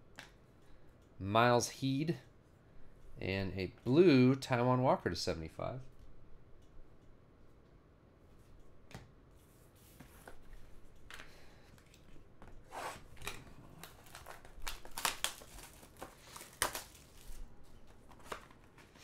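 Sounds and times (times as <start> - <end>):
cardboard tearing and rustling: 13.8 - 17.4.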